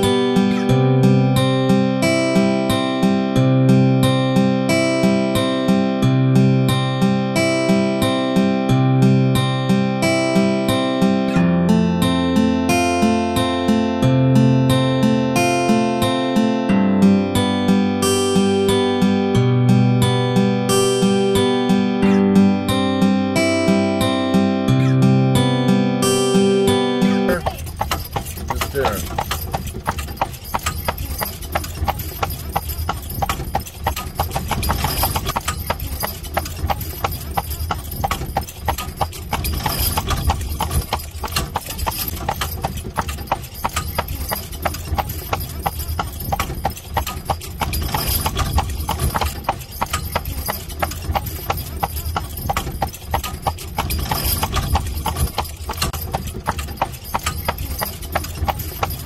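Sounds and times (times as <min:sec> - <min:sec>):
horse hooves clip-clopping on pavement: 0:00.0 - 0:00.7, 0:27.2 - 0:59.0.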